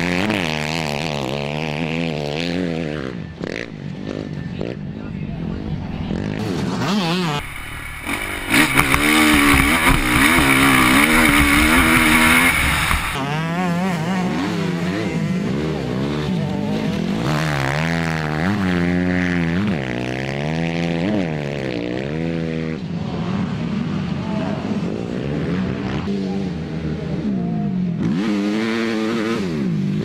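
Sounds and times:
motocross bike engines revving: 0.0 - 30.0.

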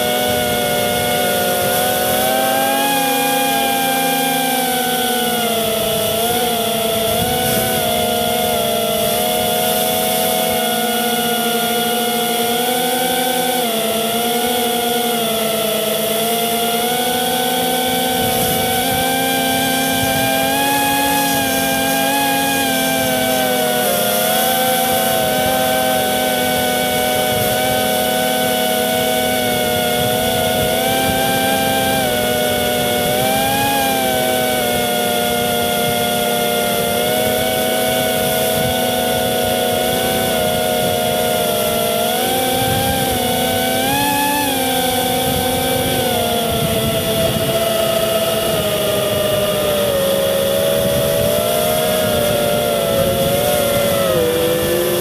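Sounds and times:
drone motors and propellers whining: 0.0 - 55.0.

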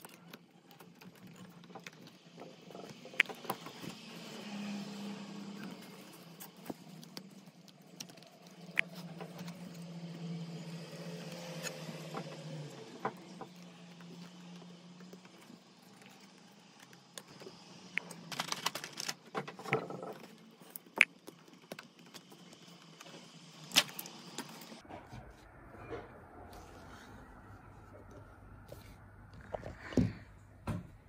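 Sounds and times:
plastic parts clicking: 13.1 - 23.1.

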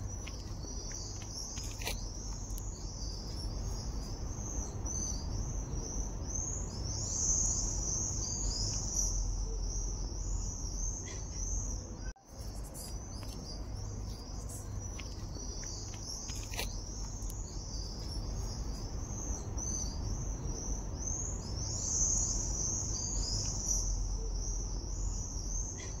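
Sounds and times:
insects chirring: 0.0 - 26.0.

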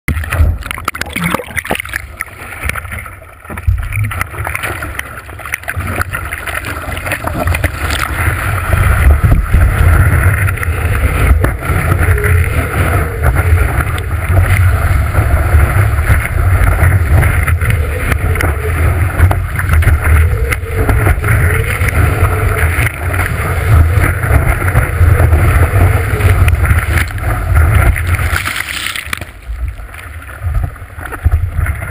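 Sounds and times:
water rushing and splashing: 0.1 - 31.9
wind buffeting microphone: 6.9 - 28.4.

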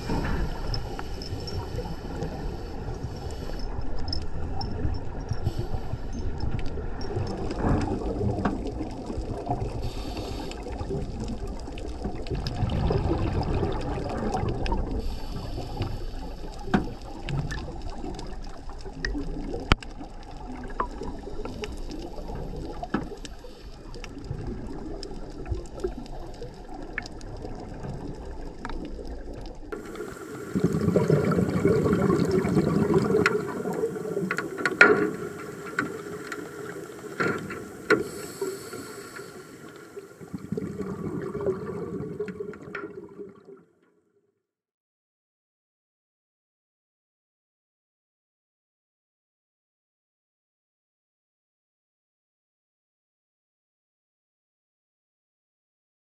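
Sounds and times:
muffled underwater rush: 0.0 - 43.7
scuba exhaled bubbles: 0.0 - 43.7.

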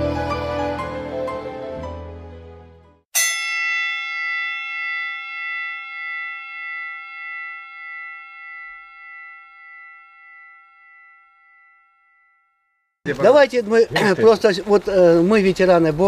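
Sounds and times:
bell-like chime ringing: 3.2 - 13.0.

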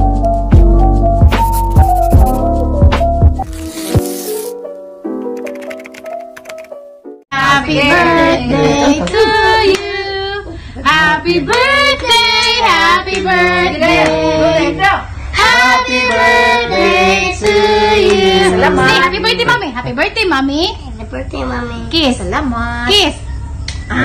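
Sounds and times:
soft intro music: 0.0 - 7.2, 16.8 - 19.7
woman singing: 7.3 - 19.7
child singing: 15.4 - 19.6.

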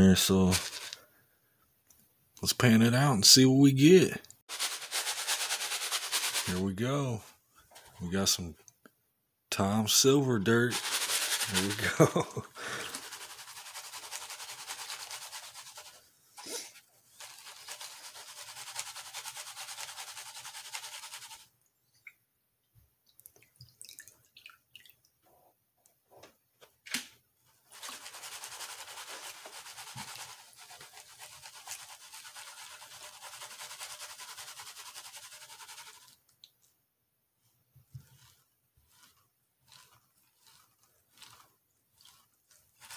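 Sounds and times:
gravel swishing in a pan: 0.0 - 1.0, 4.5 - 7.2, 10.4 - 21.4, 27.7 - 36.1, 38.0 - 42.9
water dripping and splashing: 23.0 - 25.2.

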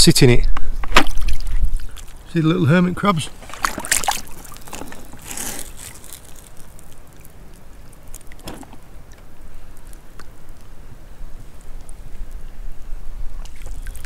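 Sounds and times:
water drips: 1.1 - 2.4, 3.3 - 10.7, 13.4 - 14.0
hand splashing in water: 3.4 - 7.0.

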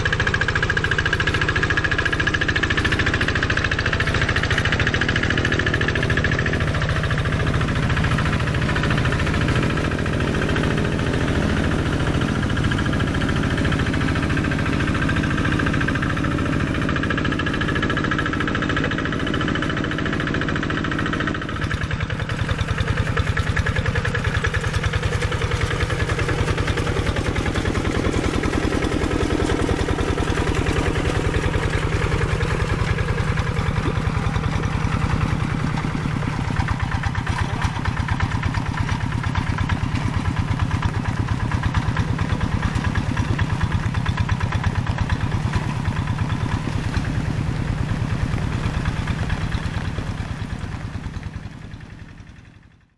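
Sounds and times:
diesel engine running under load: 0.0 - 52.9.

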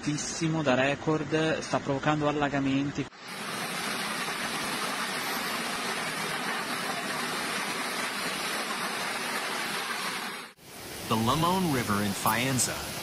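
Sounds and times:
floodwater rushing: 3.2 - 13.0.

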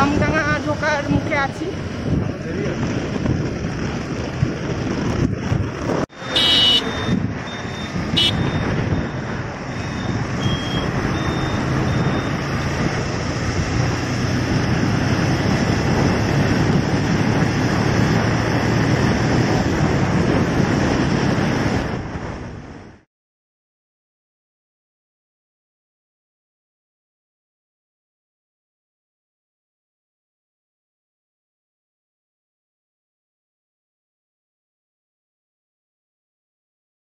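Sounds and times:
wind buffeting microphone: 0.0 - 6.1, 6.8 - 23.0
motorbike engine: 0.0 - 21.9
road traffic: 0.0 - 23.1
short high horn beeps: 6.2 - 12.4.

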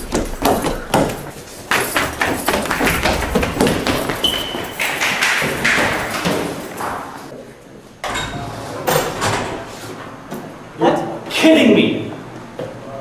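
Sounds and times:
footsteps on hard floor and stairs: 0.0 - 7.3.

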